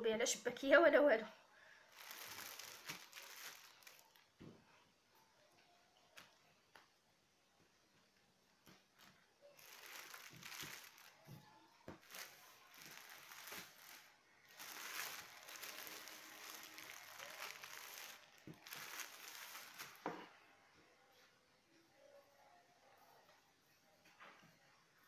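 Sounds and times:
plastic bag crinkling: 1.8 - 4.3, 9.0 - 20.2.

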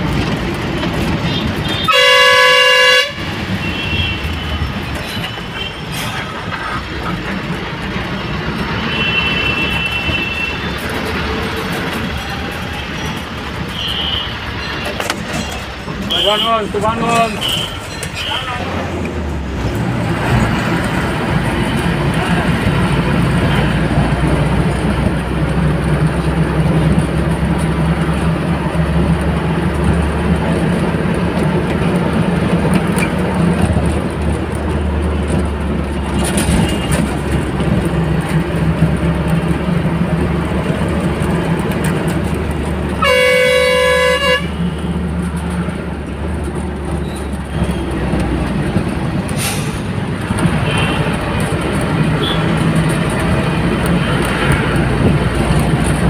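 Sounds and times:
bus engine droning: 0.0 - 56.0
road and wind noise: 0.0 - 56.0
horn sounding: 1.2 - 4.7, 42.9 - 44.7.

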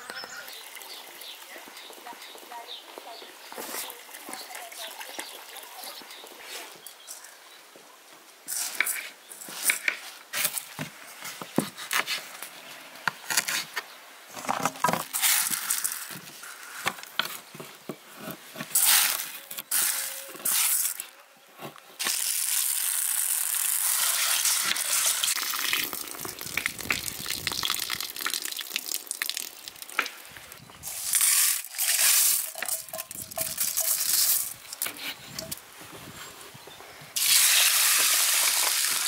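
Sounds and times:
dry beans pouring into bowl: 15.1 - 16.2, 22.0 - 30.0, 30.8 - 34.8, 37.2 - 39.0
beans clicking: 30.8 - 35.6.

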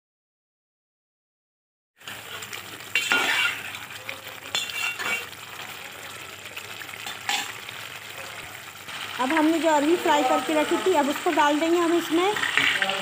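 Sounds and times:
food sizzling in a pot: 2.0 - 13.0
metal spatula scraping a pot: 2.9 - 3.8, 4.5 - 5.4, 7.0 - 7.6, 12.3 - 12.9.

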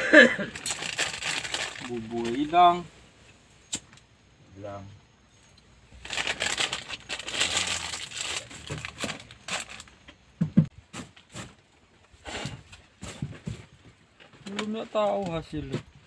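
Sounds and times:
plastic packet crinkling: 0.5 - 2.5, 6.0 - 10.0
dull knocks on wooden floor: 10.4 - 10.7.

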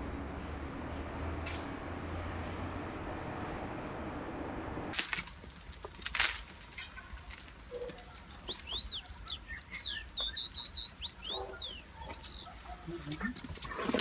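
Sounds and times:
small bird chirping: 7.7 - 12.7.

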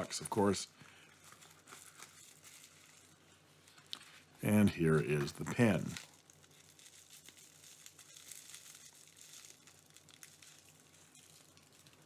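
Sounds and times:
bubble wrap crinkling: 0.0 - 12.0.

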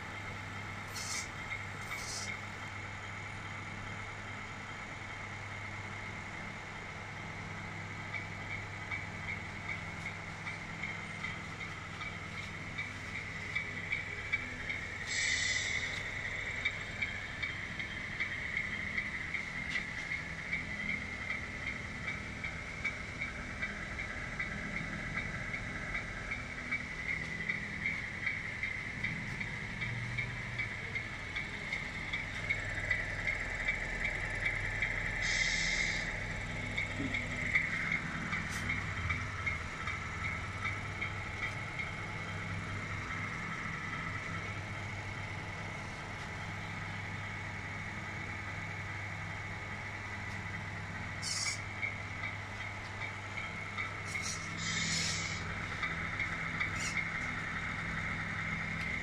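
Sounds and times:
electronic diesel engine idle sound: 0.0 - 59.0
hiss: 0.9 - 2.4, 15.0 - 16.1, 35.2 - 36.2, 54.1 - 55.5.

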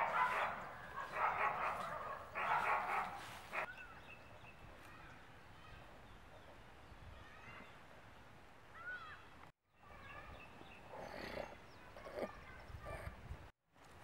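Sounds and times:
dog barking: 0.0 - 3.7.

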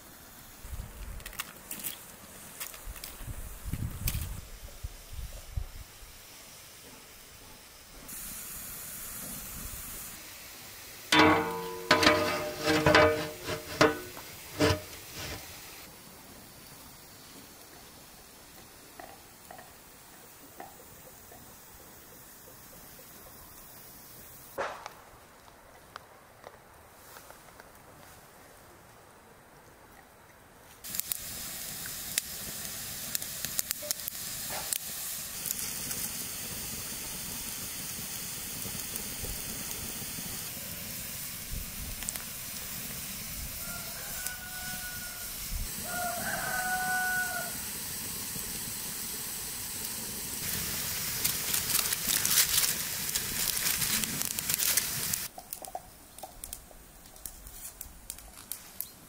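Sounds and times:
wood fire crackling and popping: 0.9 - 4.4, 11.1 - 15.9, 30.8 - 44.5, 47.2 - 59.0
rooster crowing: 43.6 - 47.6.

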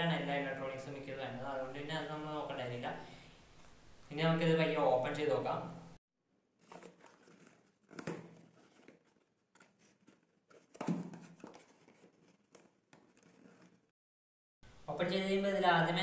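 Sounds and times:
cardboard box handling: 6.6 - 13.8.

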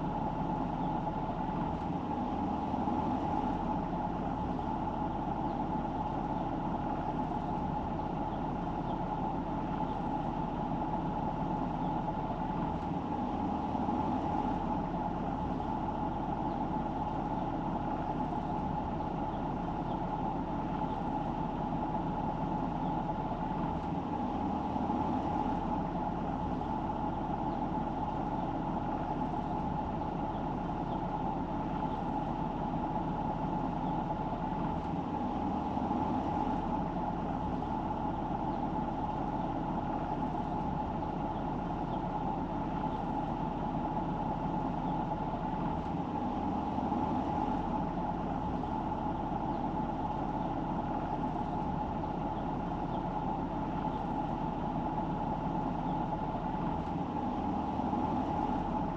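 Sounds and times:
car road and engine noise: 0.0 - 58.9.

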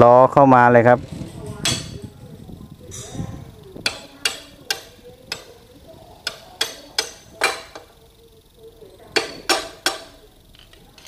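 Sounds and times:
hammer tapping metal axle: 1.6 - 2.1, 2.9 - 8.0, 9.1 - 11.0.

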